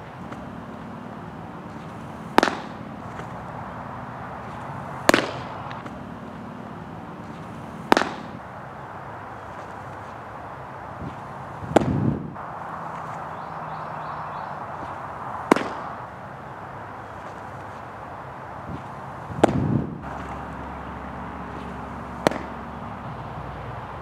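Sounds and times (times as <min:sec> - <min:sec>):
outdoor background noise: 0:00.0 - 0:24.0
baseball smacking into mitt: 0:01.7 - 0:03.3, 0:04.4 - 0:06.0, 0:07.2 - 0:08.4, 0:11.0 - 0:12.2, 0:14.8 - 0:15.9, 0:18.7 - 0:20.4, 0:21.5 - 0:22.6.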